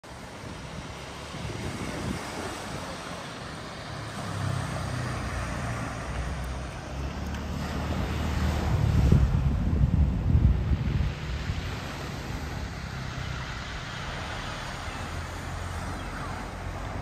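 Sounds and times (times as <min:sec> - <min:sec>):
sea waves on rocky shore: 0:00.1 - 0:17.0
wind buffeting microphone: 0:00.1 - 0:17.0.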